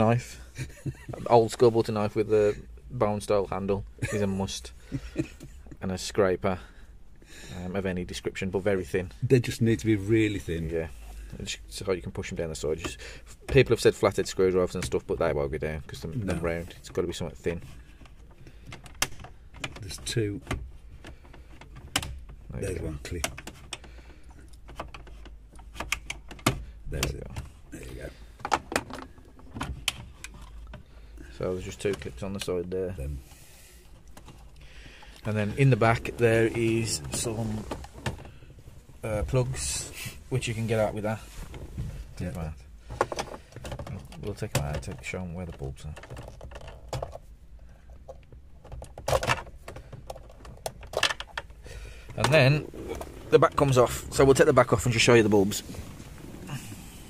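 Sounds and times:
plastic scraping and rustling: 0:33.9 - 0:47.3, 0:48.1 - 0:57.0.

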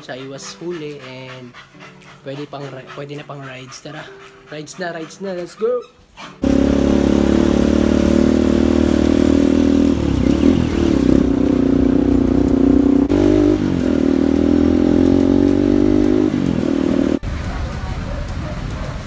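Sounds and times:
motorcycle engine running: 0:06.4 - 0:19.0.

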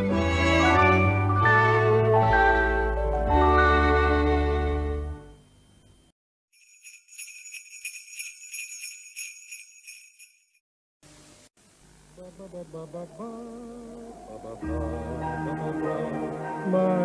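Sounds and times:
sleigh bells shaken: 0:06.6 - 0:10.6.

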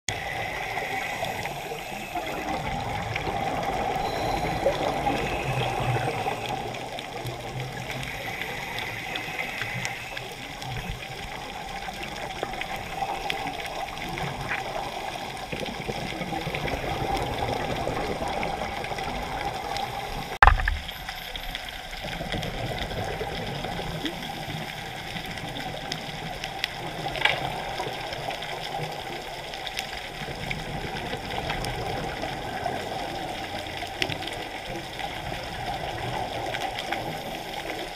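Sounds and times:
muffled underwater rushing: 0:00.1 - 0:37.9
sharp knock: 0:20.4 - 0:20.8.

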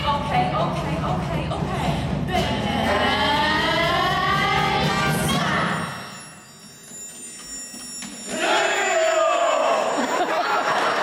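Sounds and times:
singers performing show tune: 0:00.0 - 0:06.1.

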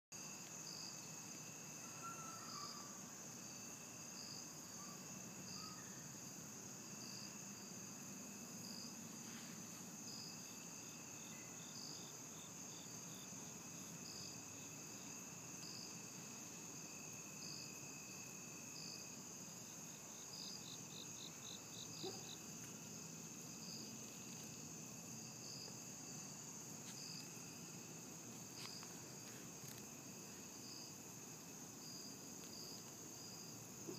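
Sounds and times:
cricket chirping: 0:00.2 - 0:33.9
crickets trilling: 0:00.2 - 0:33.9
rapid pulsed cricket trill: 0:09.7 - 0:33.9.

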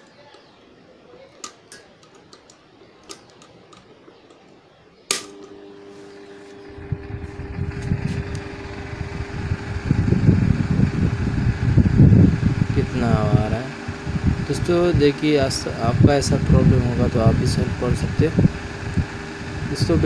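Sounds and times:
fan motor humming: 0:00.0 - 0:20.0
fan switch click: 0:05.1 - 0:05.6
rush of air from fan: 0:05.8 - 0:20.0.

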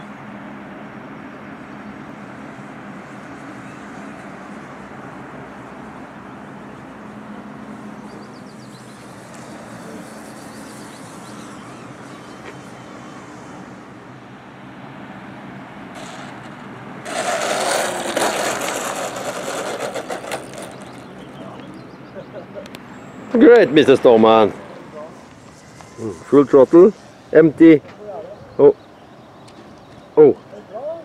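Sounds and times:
model plane motor droning: 0:02.2 - 0:14.0, 0:16.0 - 0:21.7
rough rushing noise: 0:15.7 - 0:21.7, 0:23.5 - 0:27.8.

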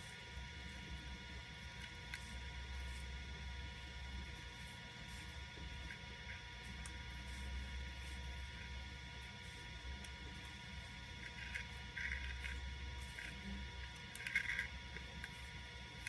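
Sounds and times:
film projector motor hum: 0:00.0 - 0:16.0.

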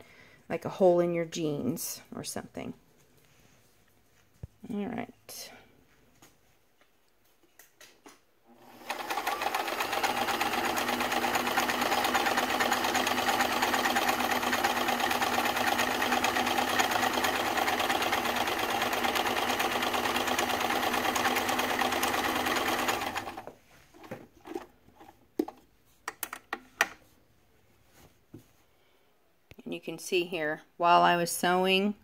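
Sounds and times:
sewing machine running: 0:08.5 - 0:23.5.

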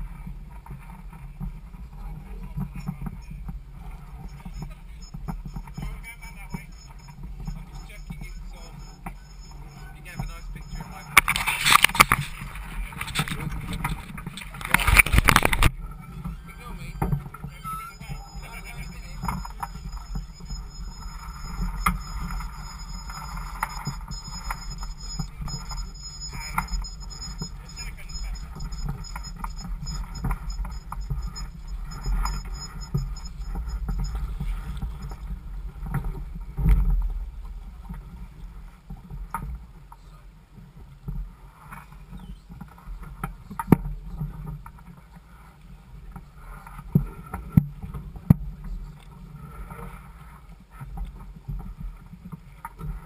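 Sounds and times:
boat hull rumbling and knocking: 0:00.2 - 0:40.0
background voices: 0:02.0 - 0:35.3.

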